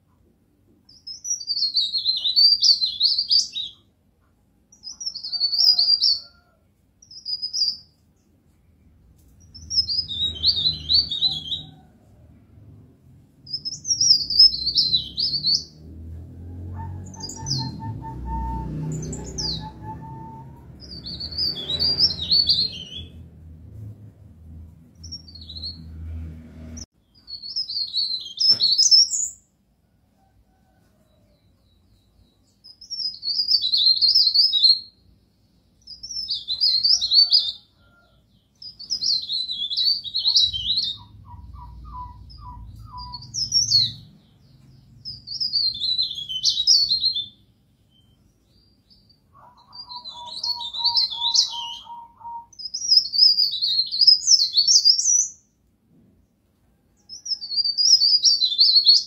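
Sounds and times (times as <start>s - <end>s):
bird twittering song: 0.9s - 3.9s, 4.7s - 6.4s, 7.0s - 11.8s, 13.4s - 16.0s, 16.8s - 23.2s, 25.0s - 25.9s, 31.4s - 37.5s, 38.4s - 55.5s
lower rapid bird trill: 31.7s - 55.5s.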